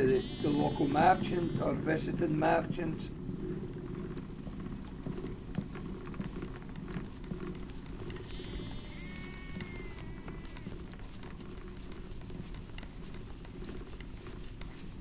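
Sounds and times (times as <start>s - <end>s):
sheep bleating: 0.0s - 2.0s, 8.2s - 10.8s
small clicks: 3.4s - 15.0s.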